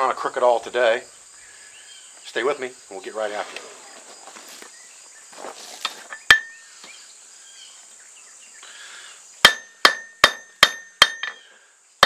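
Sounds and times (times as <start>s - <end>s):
hammer striking steel on anvil: 9.4s - 11.4s.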